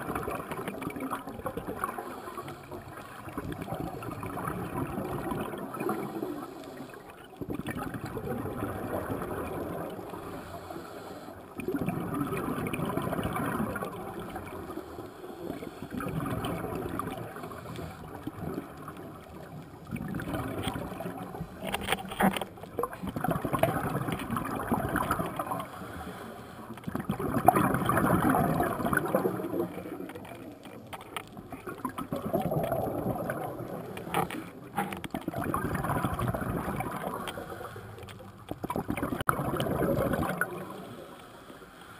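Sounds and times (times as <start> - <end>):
air bubbling from regulator: 0.0 - 10.4, 11.5 - 14.9, 15.5 - 21.6, 22.7 - 25.7, 26.9 - 30.1, 31.5 - 37.5, 38.6 - 40.9.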